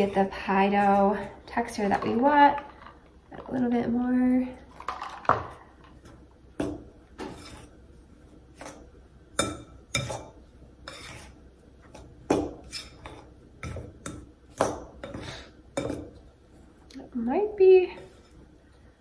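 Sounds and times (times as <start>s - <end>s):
fork scraping a glass bowl: 7.2s - 7.7s, 10.8s - 11.4s, 12.6s - 13.2s.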